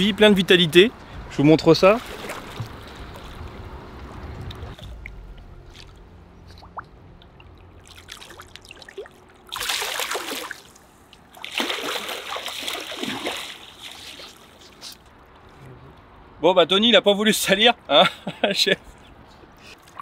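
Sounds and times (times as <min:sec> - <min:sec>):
fish splashing in water: 0:02.0 - 0:03.4, 0:04.8 - 0:14.9.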